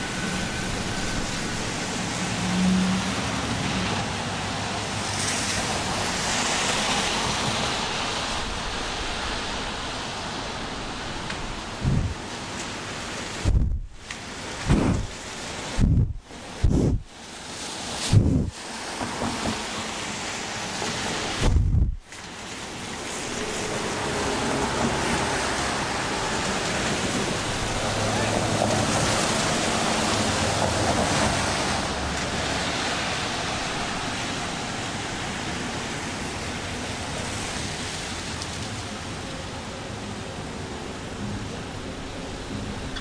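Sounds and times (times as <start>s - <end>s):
passing traffic: 0.0s - 43.0s
gusty wind on microphone: 4.9s - 12.6s, 13.3s - 22.1s
loud low thump: 11.8s - 12.2s, 14.7s - 15.1s.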